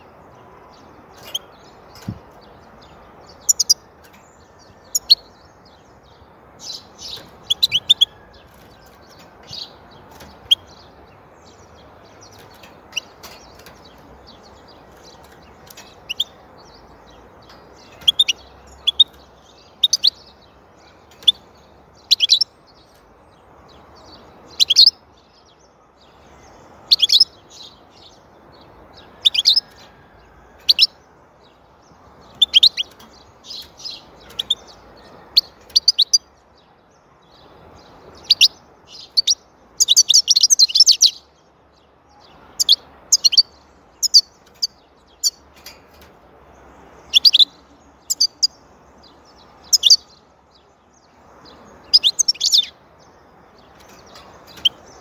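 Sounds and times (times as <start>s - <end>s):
goldfinch twittering: 2.8s - 3.9s, 6.6s - 8.2s, 8.8s - 22.5s, 32.2s - 36.4s, 42.6s - 45.4s, 47.0s - 50.2s, 51.4s - 55.0s.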